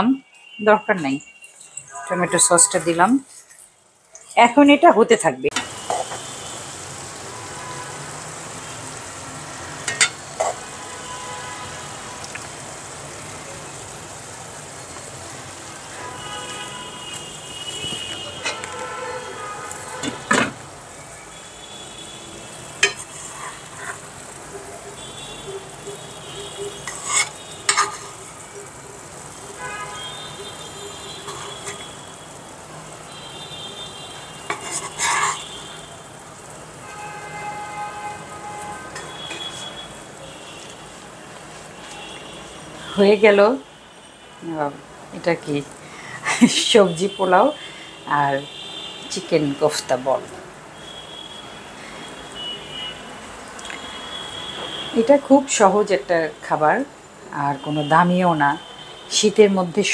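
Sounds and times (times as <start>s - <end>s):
food sizzling in a pan: 1.2s - 59.9s
metal spoon scraping a pan: 1.5s - 4.4s, 5.5s - 6.3s, 9.8s - 10.8s, 17.7s - 19.0s, 22.8s - 24.3s, 26.4s - 28.4s, 30.9s - 32.0s, 34.4s - 35.8s, 38.6s - 42.3s
metal spatula clinking cookware: 9.9s - 10.7s, 22.8s - 24.1s, 26.6s - 28.4s, 34.5s - 35.5s.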